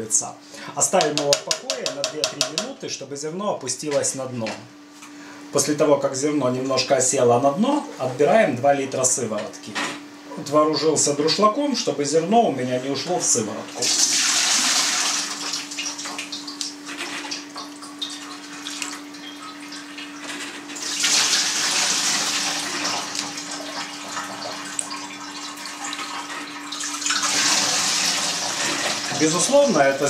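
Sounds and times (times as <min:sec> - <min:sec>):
whey pouring and splashing: 0:13.8 - 0:15.5.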